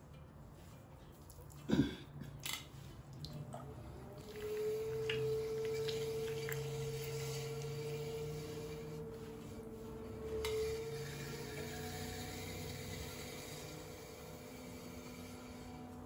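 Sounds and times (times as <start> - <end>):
pottery wheel motor whining: 3.4 - 16.0.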